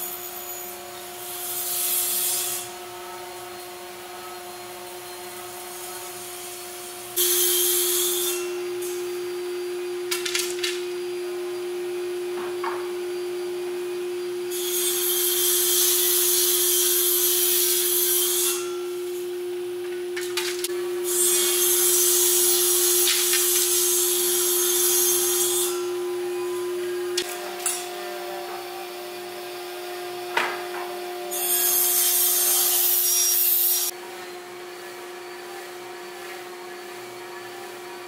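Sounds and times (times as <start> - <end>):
steady hum: 2.7 - 32.7.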